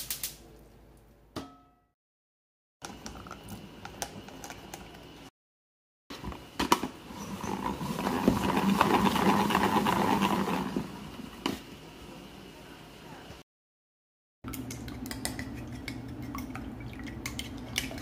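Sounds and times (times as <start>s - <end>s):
salad spinner whirring: 7.2s - 11.3s.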